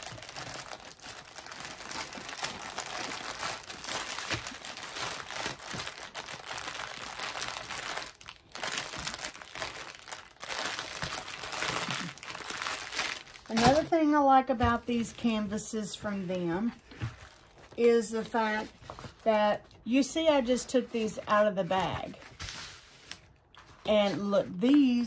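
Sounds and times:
plastic bag crinkling: 0:00.0 - 0:19.8.

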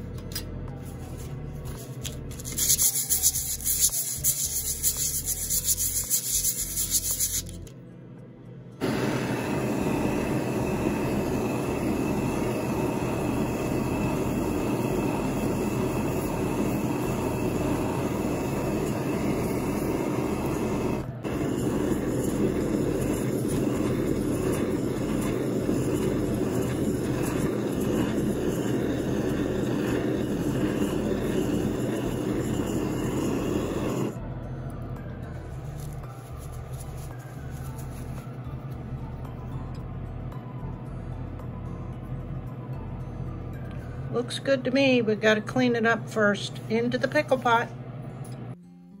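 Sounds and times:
torch burning with rushing hiss: 0:08.8 - 0:34.2.

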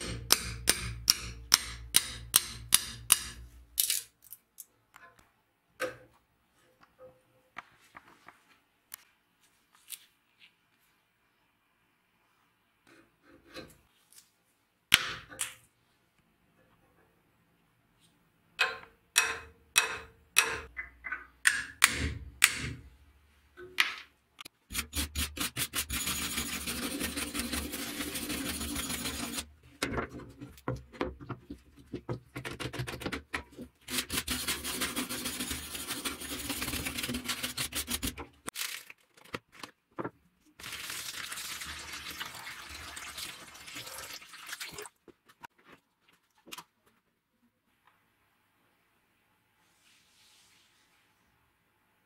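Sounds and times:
hammer tapping steel punch: 0:00.0 - 0:03.4, 0:18.6 - 0:20.8, 0:21.4 - 0:22.8
wire brush scrubbing steel: 0:24.7 - 0:29.5, 0:33.8 - 0:38.2.

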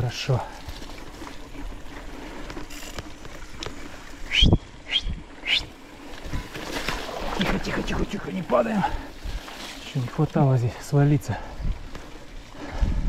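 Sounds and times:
mountain bike rolling on grass: 0:00.0 - 0:04.3.

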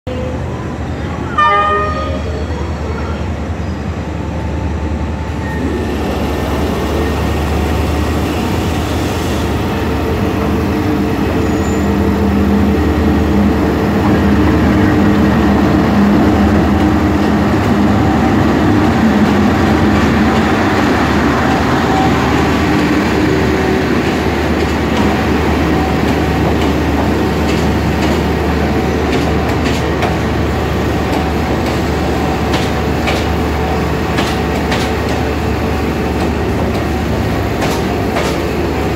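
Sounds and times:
locomotive engine hum: 0:00.1 - 0:38.9
train wheel clicks: 0:32.5 - 0:33.4, 0:34.1 - 0:35.3, 0:37.6 - 0:38.5.

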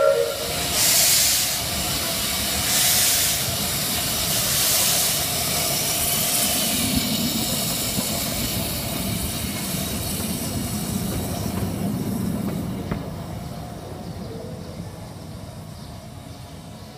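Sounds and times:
steam locomotive hissing: 0:00.0 - 0:13.4
locomotive rumbling over rails: 0:00.0 - 0:16.9.

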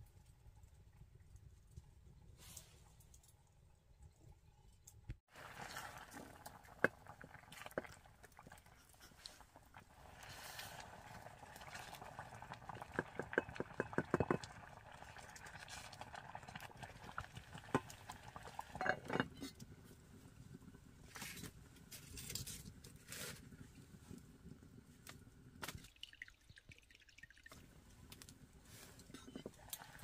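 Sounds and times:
kitchen knocks and clatter: 0:13.0 - 0:14.5.

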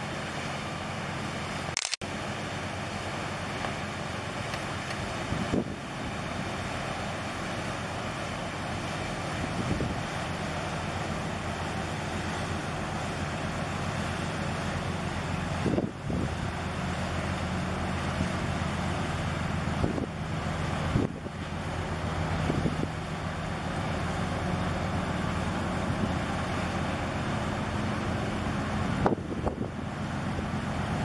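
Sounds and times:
ship engine drone: 0:00.0 - 0:31.0
wind noise on microphone: 0:05.2 - 0:06.2, 0:09.4 - 0:10.1, 0:15.5 - 0:16.6, 0:19.7 - 0:20.2, 0:20.8 - 0:21.4, 0:22.4 - 0:23.0, 0:28.8 - 0:31.0.

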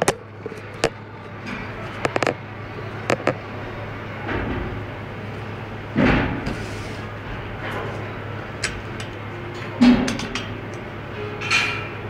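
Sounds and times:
handling noise: 0:00.0 - 0:03.5
steady low hum: 0:00.0 - 0:12.0.

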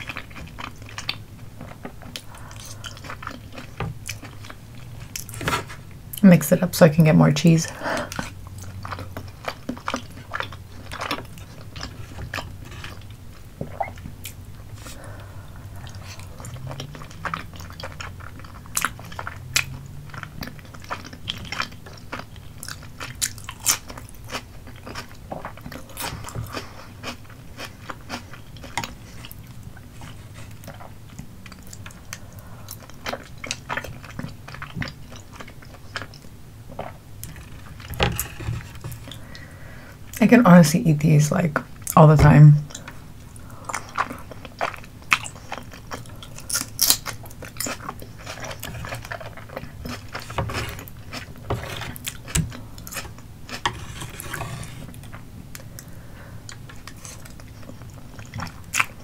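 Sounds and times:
wet sticky chewing: 0:08.0 - 0:39.5, 0:42.7 - 0:59.0
crunchy bites: 0:46.4 - 0:53.6.

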